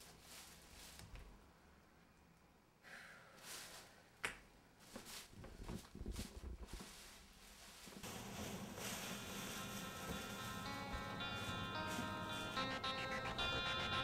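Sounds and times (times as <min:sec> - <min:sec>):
soft knocks and rustling: 0:04.9 - 0:08.1
fuller steady sound: 0:08.0 - 0:14.0.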